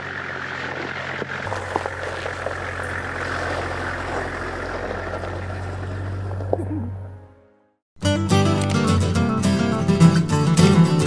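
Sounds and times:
truck engine running: 0.0 - 7.5.

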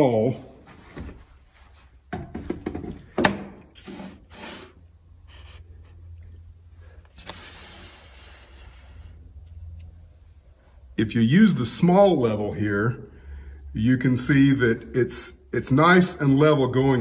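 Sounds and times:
faint low hum: 4.9 - 17.0.

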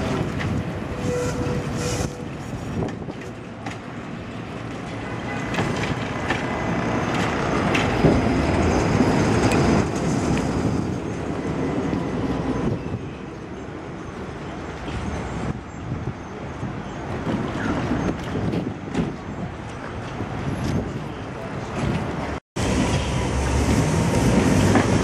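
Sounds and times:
clacks over rail joints: 0.0 - 12.1, 17.1 - 25.0
tram wheels rumbling on track: 0.0 - 25.0.

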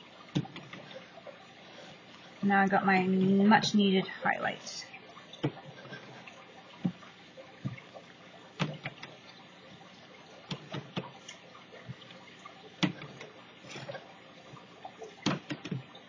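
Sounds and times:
art supplies tapping and clicking: 15.2 - 15.9.

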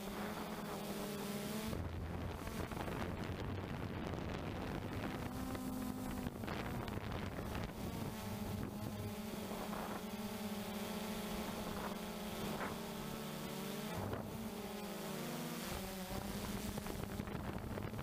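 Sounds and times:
quadcopter motors whining: 0.0 - 18.0
wind buffeting microphone: 1.8 - 10.2, 16.6 - 18.0.

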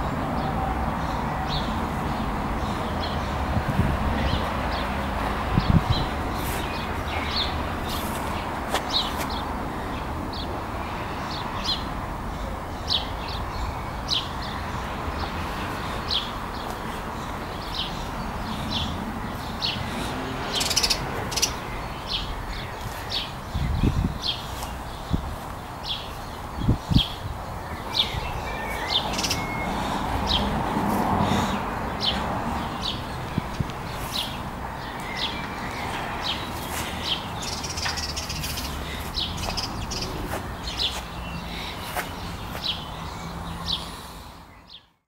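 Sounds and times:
bird chirping: 20.5 - 25.2, 25.8 - 30.5, 31.3 - 43.9.

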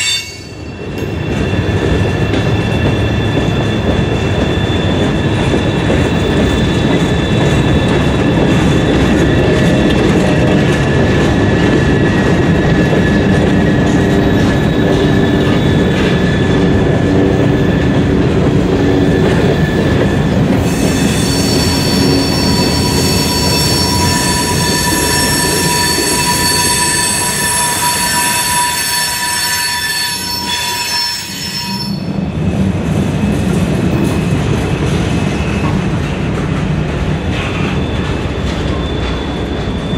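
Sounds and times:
train wheels rumbling on rails: 0.0 - 39.9
high-pitched wheel squeal: 20.6 - 32.2.

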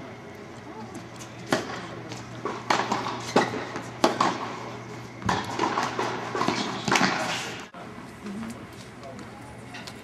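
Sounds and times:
tennis ball hit by rackets: 2.4 - 4.5, 5.2 - 7.4.

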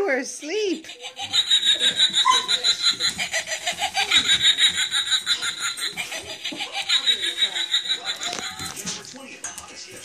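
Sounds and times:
person laughing: 1.0 - 8.8.

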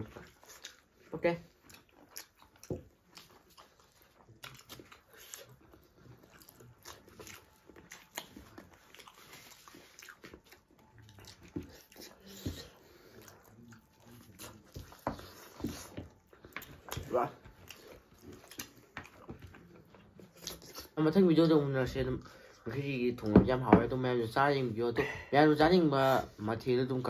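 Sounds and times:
people chewing and lip-smacking: 0.0 - 21.0.

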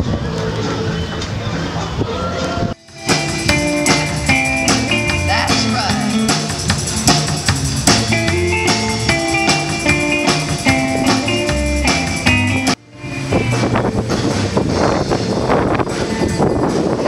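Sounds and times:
rock band playing: 2.7 - 17.0.

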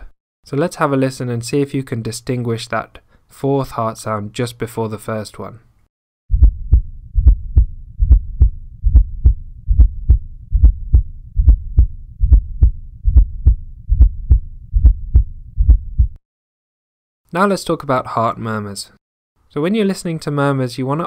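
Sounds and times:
heartbeat through stethoscope: 6.3 - 16.2.

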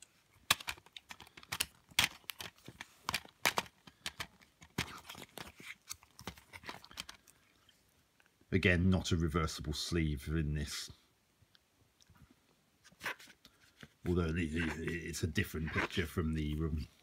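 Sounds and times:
paper insert rustling: 0.4 - 7.3, 12.8 - 17.0.

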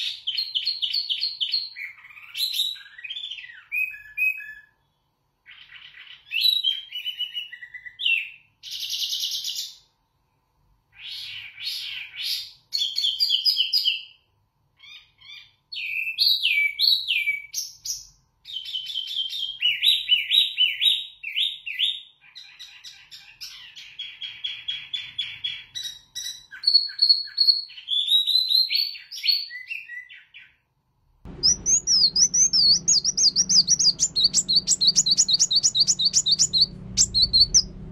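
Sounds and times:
chirping trills: 31.3 - 37.9
low background hum: 31.3 - 37.9
songbird singing: 31.3 - 37.9.

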